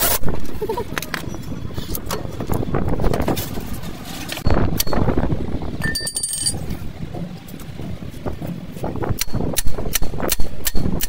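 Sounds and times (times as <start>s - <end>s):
low steady rumble: 0.3s - 11.0s.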